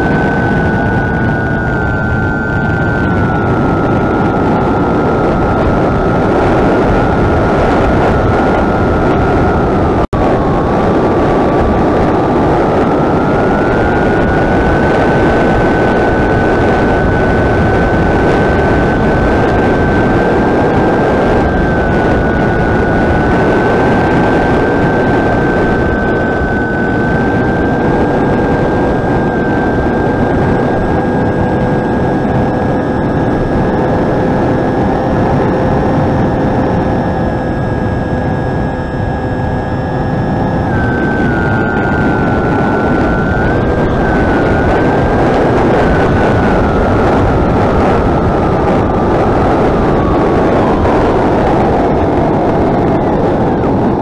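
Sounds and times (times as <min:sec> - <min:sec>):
electric motor and propeller whining: 0:00.0 - 0:54.0
wind rush over microphone: 0:00.0 - 0:54.0.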